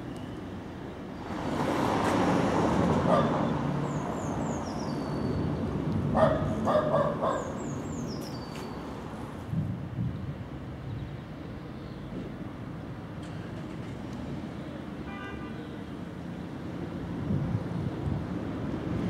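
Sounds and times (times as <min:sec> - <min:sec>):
tram rolling: 0:00.0 - 0:08.2, 0:12.0 - 0:14.8.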